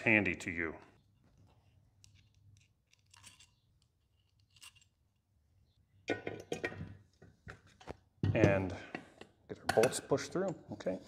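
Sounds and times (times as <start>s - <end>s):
small metal parts clicking: 2.0s - 5.0s.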